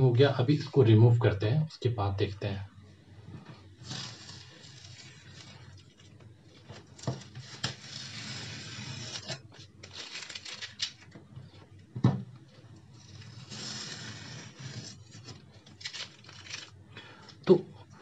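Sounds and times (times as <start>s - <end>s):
masking tape ripping off paper: 3.8s - 6.1s, 6.7s - 11.2s, 12.9s - 16.8s.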